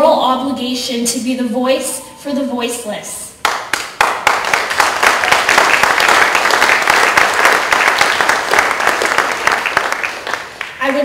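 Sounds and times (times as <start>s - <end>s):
audience applause: 3.5s - 11.0s.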